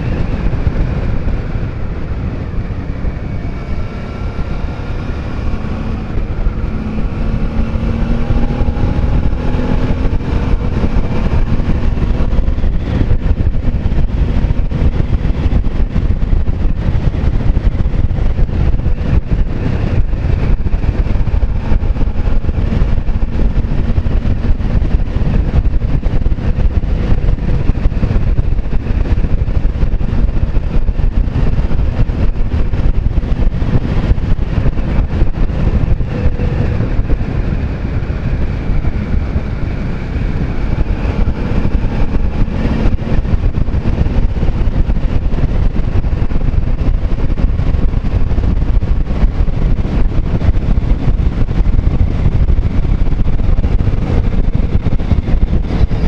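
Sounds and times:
motorcycle engine hum: 0.0 - 56.0
wind rushing on microphone: 0.0 - 56.0.

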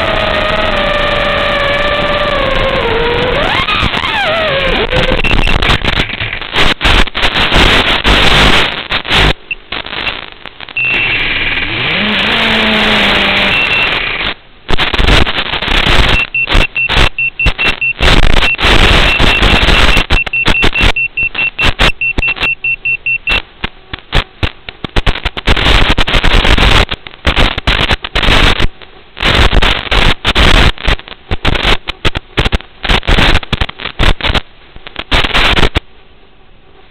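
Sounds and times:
loud hiss crackling: 0.0 - 22.6, 24.0 - 35.8
high beeps: 4.9 - 5.6, 10.8 - 11.2, 13.4 - 14.0, 16.1 - 23.4.

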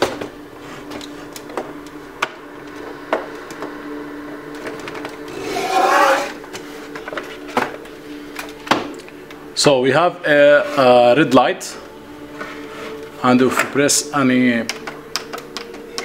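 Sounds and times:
steady low hum: 0.0 - 16.0
plastic stand scraping on workbench: 5.3 - 6.4.

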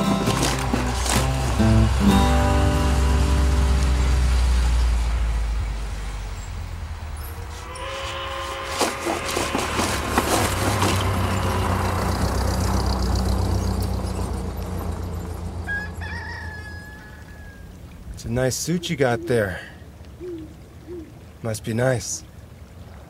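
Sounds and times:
thin high held call: 7.2 - 12.2
car engine running: 9.7 - 15.7
rooster crowing: 15.6 - 17.8.

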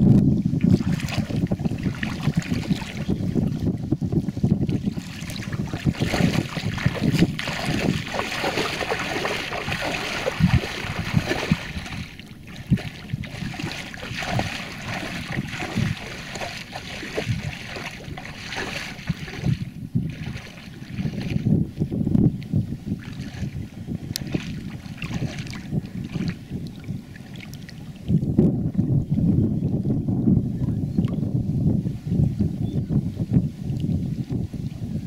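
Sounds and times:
wind buffeting microphone: 0.0 - 35.0
water splashing while wading: 0.5 - 28.3.

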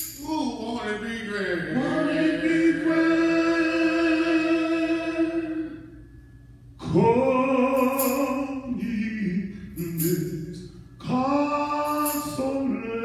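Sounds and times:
voices singing gospel song: 1.0 - 6.0, 6.8 - 13.0.

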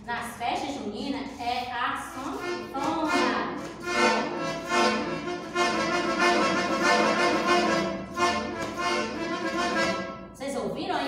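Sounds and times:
toy accordion chords: 2.3 - 10.3.

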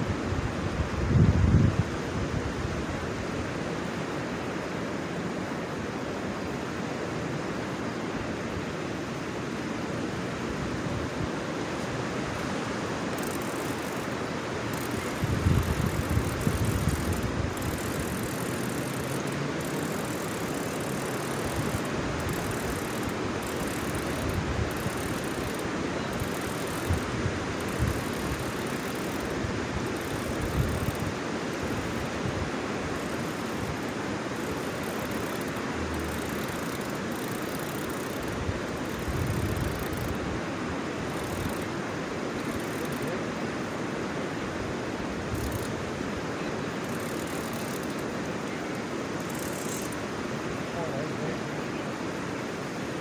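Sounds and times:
broad rushing noise: 0.0 - 53.0
wind buffeting microphone: 0.4 - 2.8, 14.6 - 18.8.

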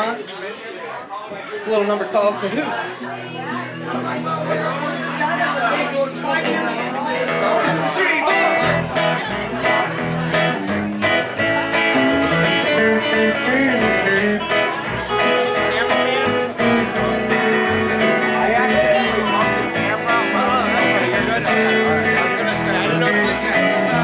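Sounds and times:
electric guitar lead line: 3.4 - 24.0
strummed acoustic guitar: 3.4 - 24.0
plucked upright double bass: 8.6 - 24.0.

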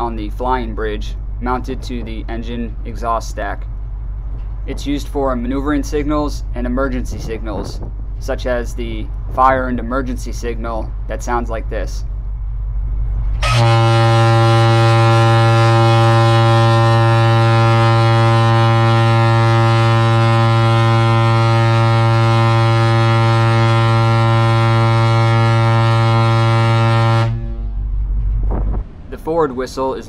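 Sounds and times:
low rumble: 0.0 - 30.0
ship whistle deep blast: 13.4 - 27.9.

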